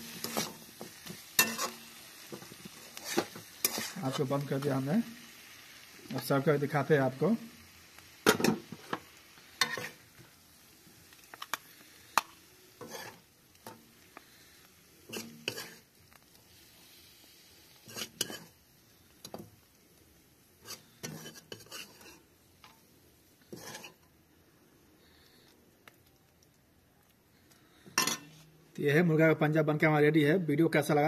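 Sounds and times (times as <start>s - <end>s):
spoon scraping and clinking pot: 0.1s - 1.8s, 2.4s - 4.1s, 9.6s - 10.0s, 12.8s - 13.2s, 15.1s - 15.8s, 17.8s - 18.5s, 20.6s - 22.2s, 23.5s - 24.0s, 28.0s - 28.4s.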